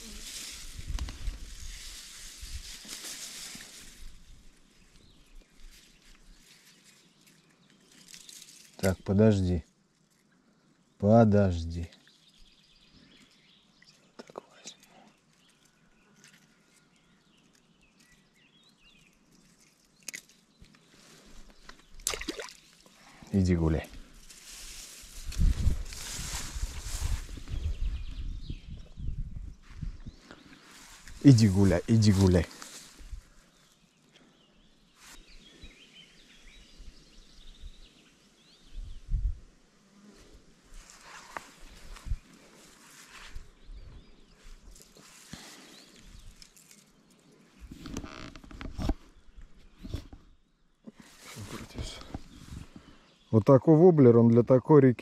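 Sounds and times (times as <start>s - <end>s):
small birds chirping: 0.0s - 55.0s
faint bird chirps: 26.3s - 39.4s.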